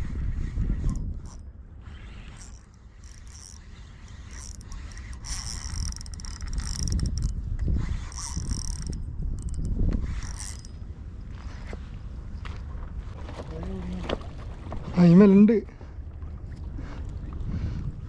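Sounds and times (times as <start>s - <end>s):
fishing reel whirring: 0.5s - 10.8s.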